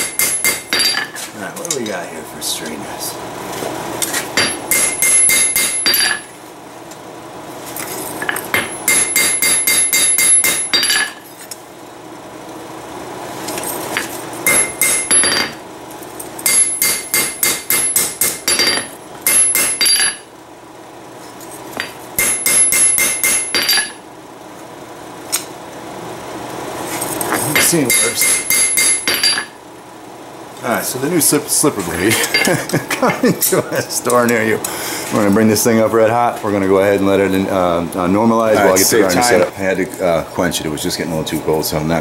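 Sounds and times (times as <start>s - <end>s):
hammer striking ringing anvil: 0.0s - 1.1s, 4.4s - 6.3s, 8.6s - 11.2s, 14.5s - 15.6s, 16.4s - 20.2s, 22.2s - 24.0s, 27.6s - 29.6s.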